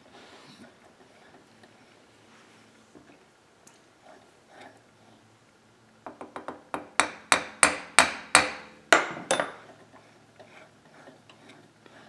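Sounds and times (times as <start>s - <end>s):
small hammer tapping metal: 6.1s - 9.7s.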